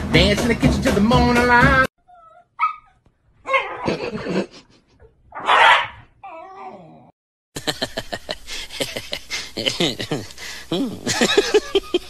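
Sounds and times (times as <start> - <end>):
dogs yelping: 2.0 - 4.0, 5.3 - 7.0
dogs barking and growling: 2.1 - 7.1.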